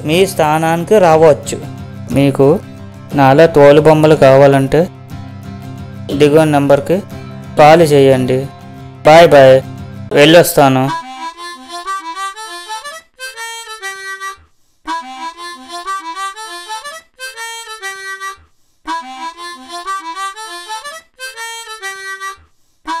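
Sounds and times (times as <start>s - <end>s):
reedy instrumental melody: 0.0s - 23.0s.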